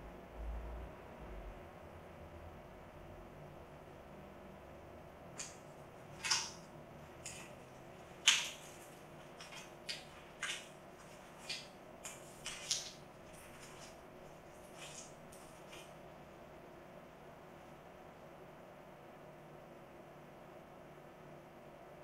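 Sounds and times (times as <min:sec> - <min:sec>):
paper bill being chewed: 0:05.4 - 0:16.0.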